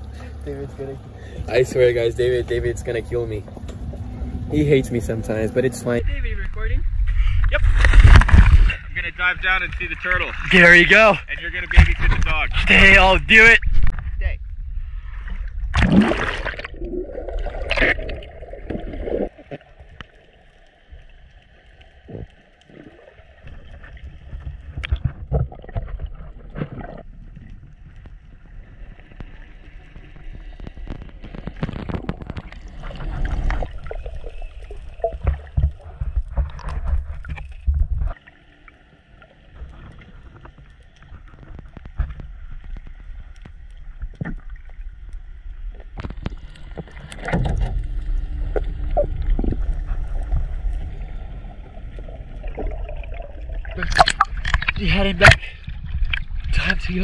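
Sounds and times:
underwater rush of water: 0.0s - 57.0s
bubbling: 15.2s - 57.0s.

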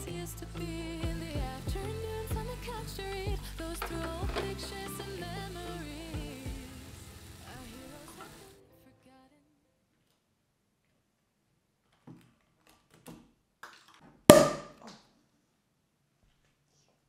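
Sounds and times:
cork popping: 14.3s - 14.8s.

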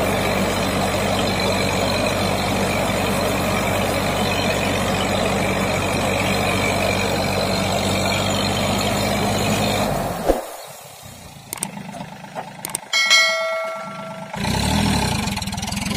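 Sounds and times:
orchard sprayer fan running: 0.0s - 15.9s
tractor engine running: 0.0s - 15.9s
clicks and bell chime: 12.9s - 14.6s.

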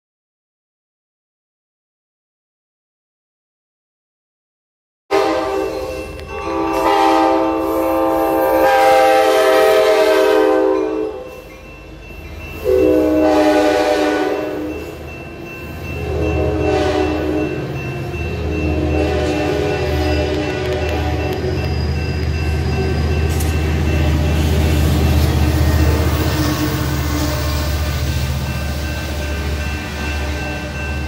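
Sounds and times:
train horn blasts: 5.1s - 11.4s, 12.6s - 14.8s, 16.0s - 17.7s, 18.4s - 21.6s, 24.0s - 28.2s
train coaches rumbling past: 5.1s - 31.0s.

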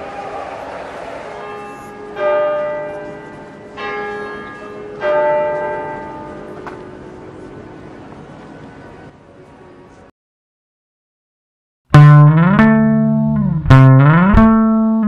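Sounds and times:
church bells ringing: 1.4s - 7.7s.

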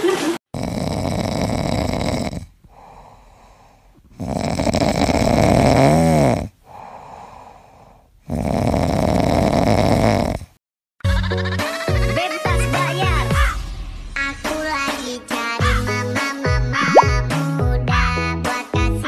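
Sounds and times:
dog snoring: 0.5s - 10.6s
soft breaths: 1.0s - 5.4s, 6.4s - 8.4s.

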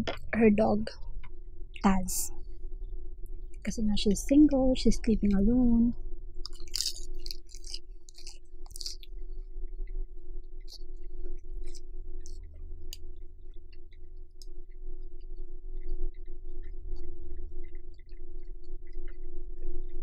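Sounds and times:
steady low hum: 0.0s - 20.0s
soft chewing: 6.4s - 20.0s.

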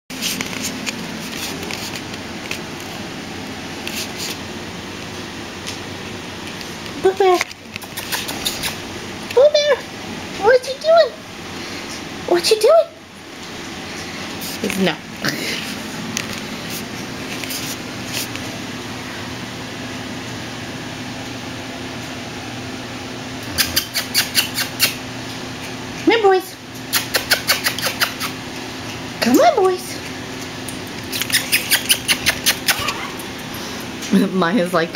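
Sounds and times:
dog claws scratching on tile: 0.1s - 3.0s, 3.8s - 4.4s, 6.5s - 8.8s, 15.5s - 18.5s, 23.5s - 25.0s, 26.8s - 28.4s, 30.8s - 33.6s
steady background hum: 0.1s - 34.9s.

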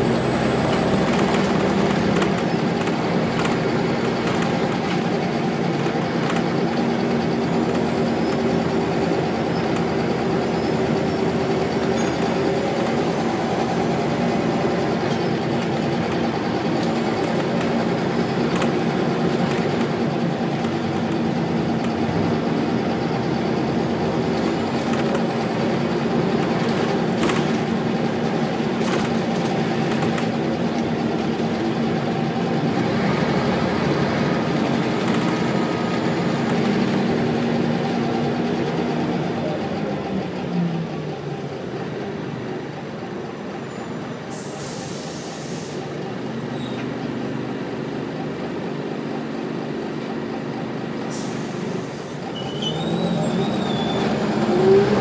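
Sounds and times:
bus body rattles: 0.0s - 40.5s
bus diesel engine running: 0.0s - 55.0s
road noise: 0.0s - 55.0s
short air hiss: 44.3s - 45.8s.

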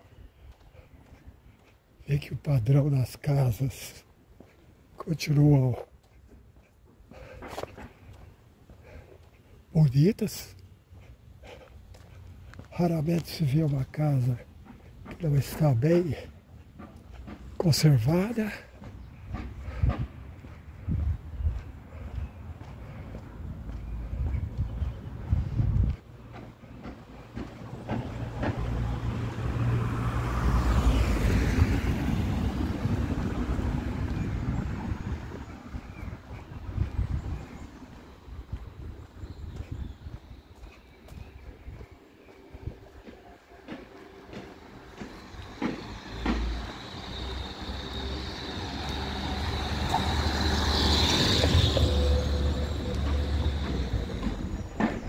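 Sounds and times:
car driving on street: 3.6s - 55.0s
steady low rumble: 19.1s - 28.9s
car driving past: 28.0s - 34.6s, 45.3s - 54.8s.

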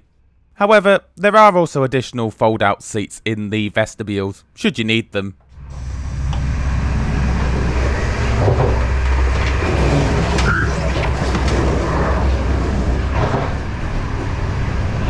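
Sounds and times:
train coach rumble: 5.6s - 15.0s.

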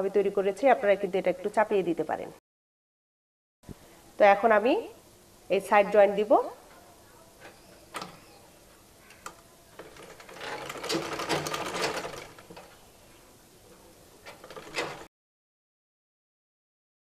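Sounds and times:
sewing machine stitching: 9.8s - 12.7s, 14.2s - 15.1s.

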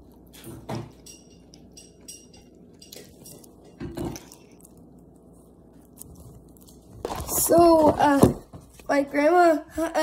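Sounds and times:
child chewing: 0.0s - 7.9s.

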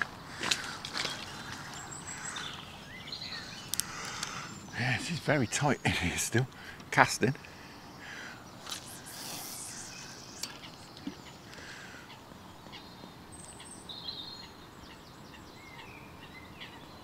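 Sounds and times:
small birds chirping: 0.0s - 17.0s
fishing line leaving reel: 8.7s - 10.6s.

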